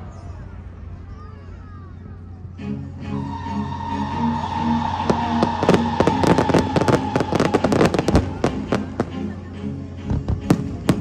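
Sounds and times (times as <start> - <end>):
fireworks crackling bangs: 5.1 - 9.3.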